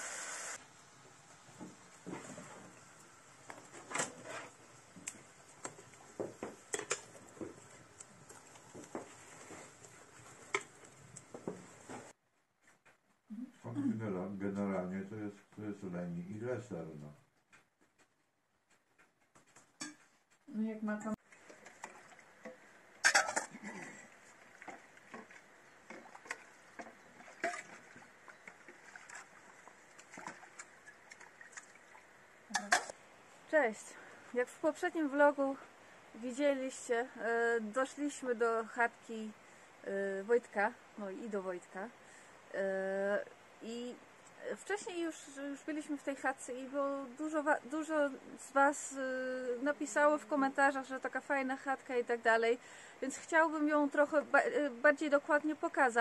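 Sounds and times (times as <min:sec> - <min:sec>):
water splashing: 0:21.3 - 0:32.9
metal bowls clattering against basin: 0:23.0 - 0:24.0.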